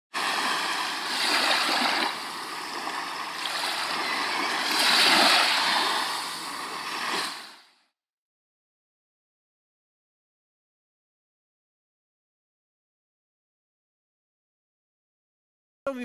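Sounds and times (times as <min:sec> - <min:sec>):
sea waves washing in: 0:00.1 - 0:07.8.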